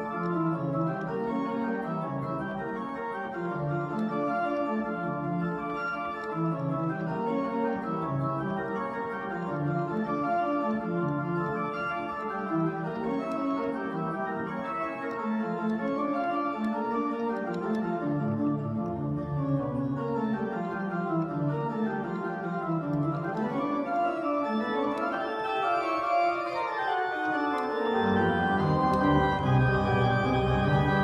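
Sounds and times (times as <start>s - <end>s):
church organ playing: 0.0s - 31.0s.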